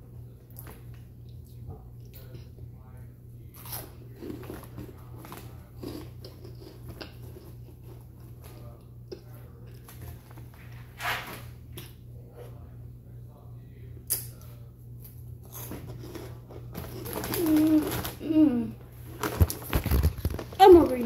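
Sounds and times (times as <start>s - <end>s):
steady low hum: 0.0s - 21.0s
person chewing crunchy chips: 3.6s - 10.5s, 15.4s - 21.0s.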